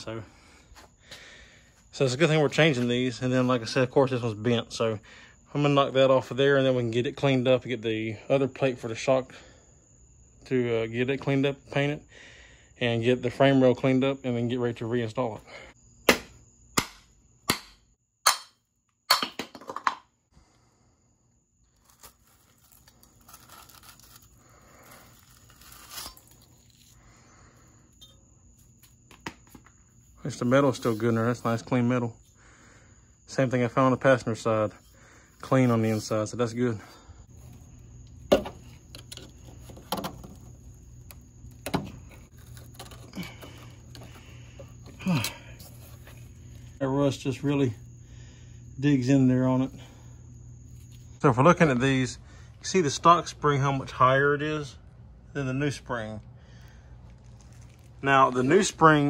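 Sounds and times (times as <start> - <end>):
hammer striking steel: 16.1 - 19.4
sharp metal knocks: 16.1 - 19.7
low steady hum: 21.8 - 59.0
faint scraping and rustling: 27.9 - 32.3, 34.2 - 46.8, 57.0 - 59.0.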